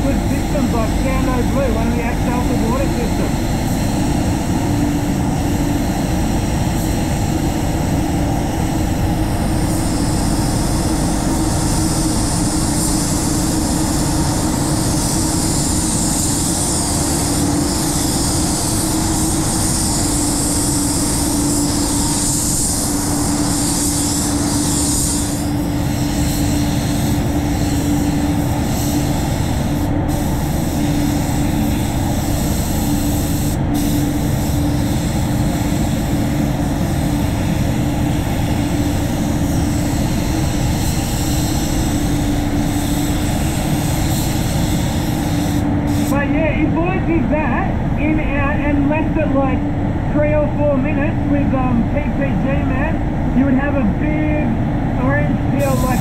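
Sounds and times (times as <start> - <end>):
air extraction hum: 0.0 - 56.0
spray gun hissing: 9.6 - 46.2, 55.6 - 56.0.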